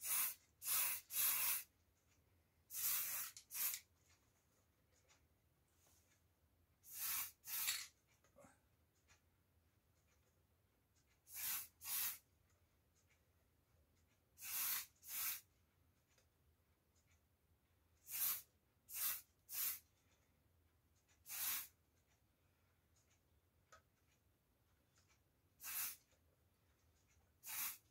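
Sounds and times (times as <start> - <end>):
hissing spray squirts: 6.9 - 7.8, 21.3 - 21.7, 25.6 - 26.0, 27.4 - 27.8.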